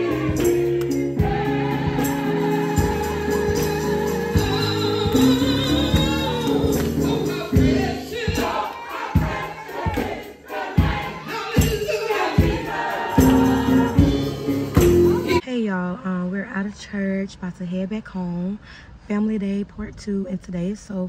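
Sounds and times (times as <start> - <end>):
choir and congregation singing gospel: 0.0 - 15.4
held instrumental chords: 0.0 - 15.4
steady beat: 0.0 - 15.4.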